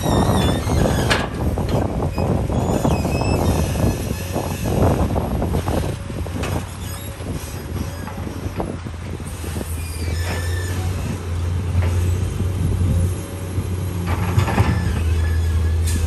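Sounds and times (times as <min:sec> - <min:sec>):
diesel truck engine running: 0:03.4 - 0:16.0.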